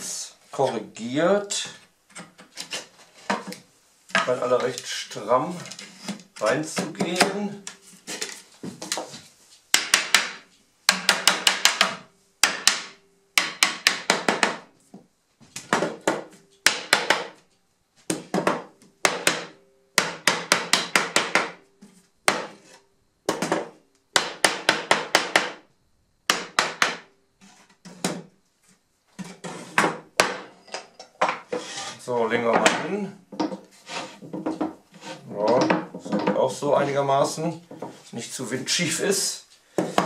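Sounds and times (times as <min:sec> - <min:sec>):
hammer knocking on wood: 0:09.8 - 0:14.6, 0:15.7 - 0:17.4.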